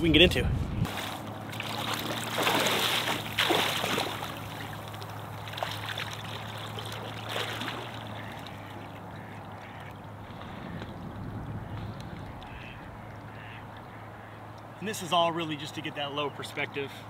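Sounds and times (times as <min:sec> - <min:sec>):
water splashing around wading legs: 0:00.9 - 0:10.5.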